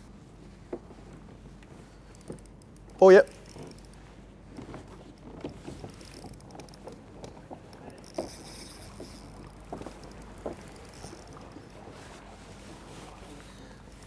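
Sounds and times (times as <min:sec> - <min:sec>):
water lapping against kayak hull: 0:01.3 - 0:14.0.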